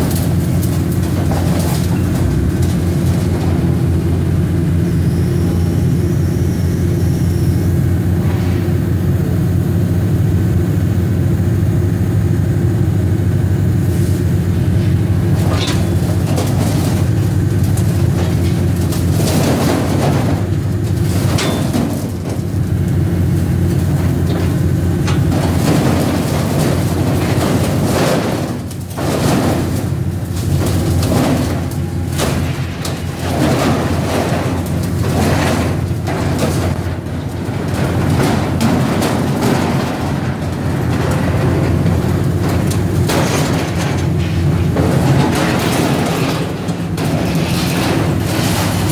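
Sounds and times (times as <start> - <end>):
grapple knocking and scraping pipes: 0.0 - 4.3, 14.6 - 48.9
diesel engine running: 0.0 - 48.9.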